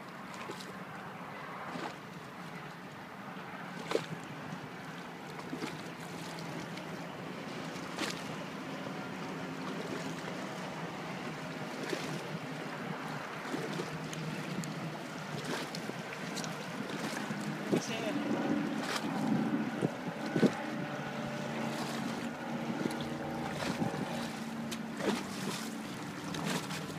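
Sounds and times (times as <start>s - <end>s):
low steady hum: 0.0s - 26.9s
river water: 0.0s - 26.9s
wind: 0.0s - 26.9s.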